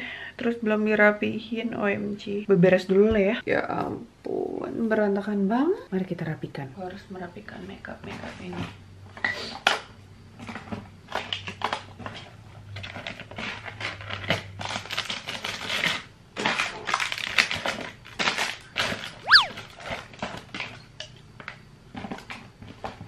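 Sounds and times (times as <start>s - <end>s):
short squeak: 19.2s - 19.6s.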